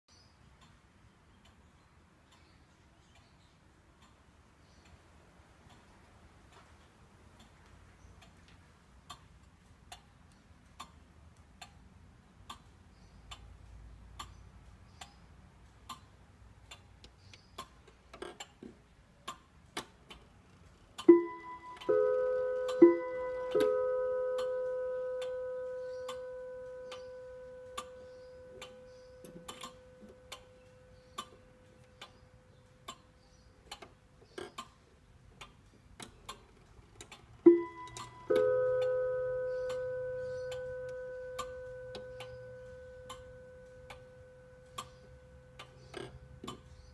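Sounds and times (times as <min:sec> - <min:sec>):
clock ticking: 0:00.5 - 0:46.9
clock chiming ding-dong: 0:21.1 - 0:31.7, 0:37.5 - 0:46.4.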